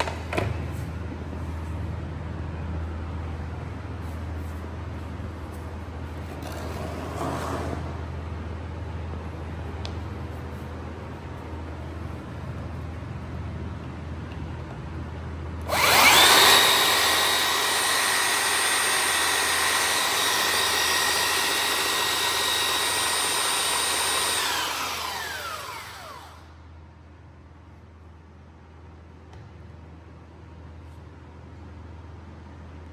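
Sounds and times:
belt sander motor whine: 15.7 - 26.5.

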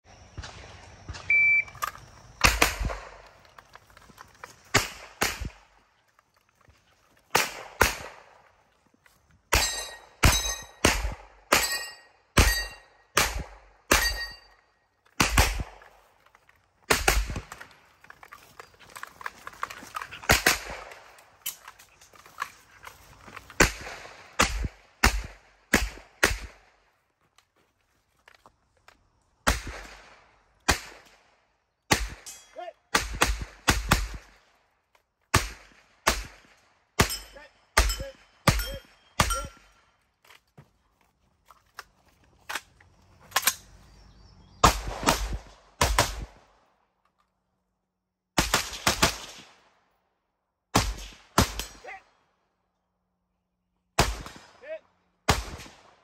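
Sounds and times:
gunshots echoing: 2.4 - 3.2, 4.7 - 5.8, 7.3 - 8.4, 9.5 - 14.5, 15.2 - 16.0, 16.9 - 17.6, 20.2 - 21.2, 23.6 - 26.7, 35.3 - 39.7, 44.6 - 46.5, 54.0 - 56.0.

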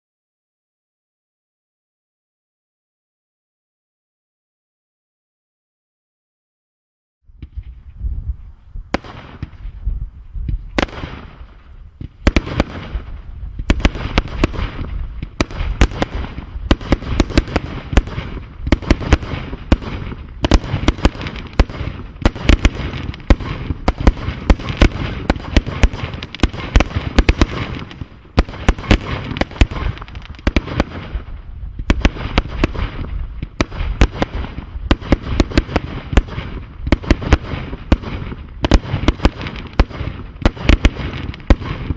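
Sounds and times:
firework cake firing: 8.9 - 41.9.

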